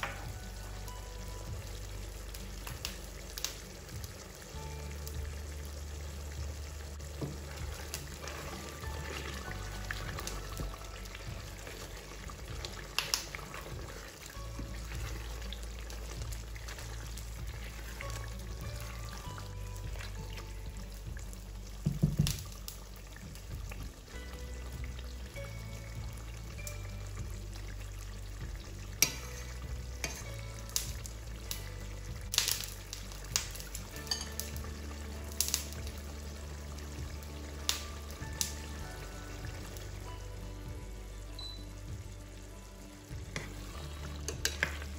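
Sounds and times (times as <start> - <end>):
background music: 0.0 - 44.9
thick sauce bubbling in a pan: 0.0 - 44.9
spatula stirring sauce: 7.3 - 21.2, 28.4 - 31.4, 43.2 - 44.9.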